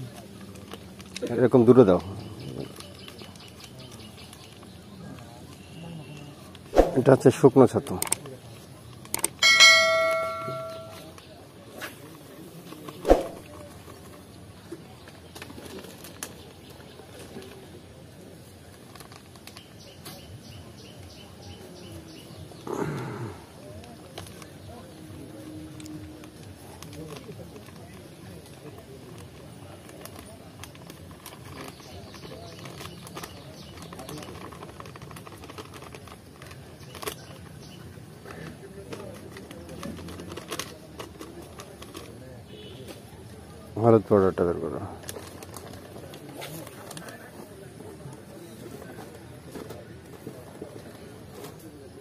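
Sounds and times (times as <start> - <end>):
plastic bag crinkling: 26.8 - 37.6.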